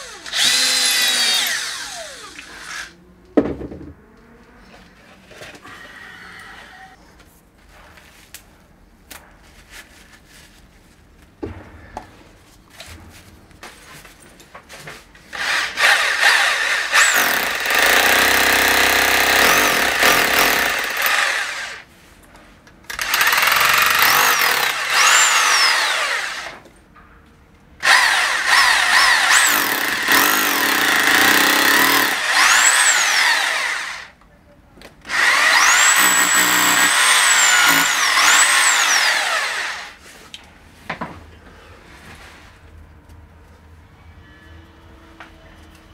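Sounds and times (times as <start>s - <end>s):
hammer drill boring into plaster: 0.0s - 2.9s, 15.4s - 21.8s, 22.9s - 26.6s, 27.8s - 34.1s, 35.1s - 40.0s.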